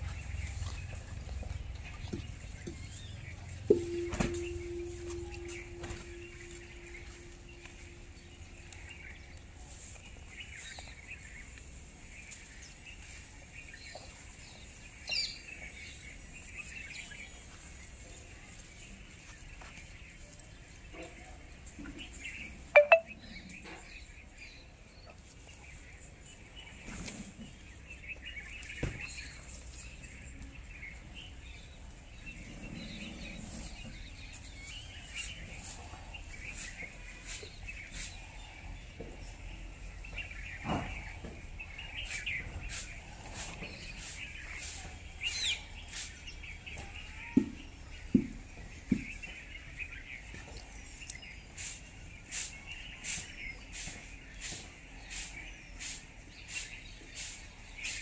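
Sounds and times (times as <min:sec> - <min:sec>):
birds chirping: 0:00.0 - 0:58.0.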